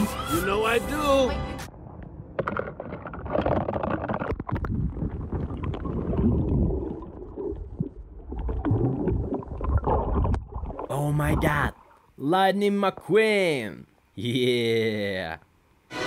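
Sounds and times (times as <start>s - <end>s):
muffled water sloshing underwater: 1.8s - 10.9s
water bubbling: 2.4s - 12.1s.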